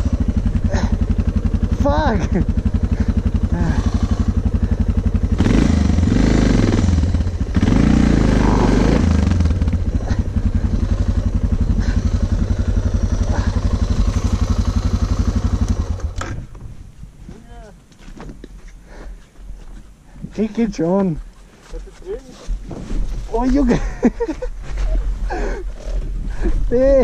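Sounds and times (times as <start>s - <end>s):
motorcycle engine running: 0.0s - 16.6s.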